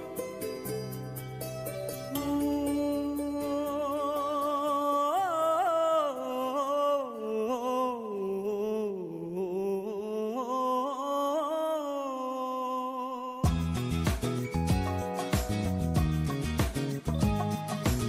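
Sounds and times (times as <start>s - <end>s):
slow wordless melody: 0.0s - 18.0s.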